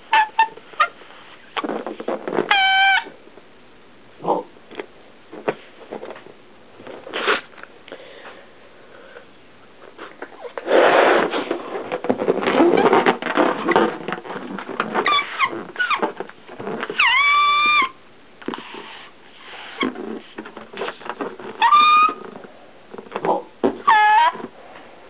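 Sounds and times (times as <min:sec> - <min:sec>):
fox scraping and rustling: 0:18.5 - 0:23.1.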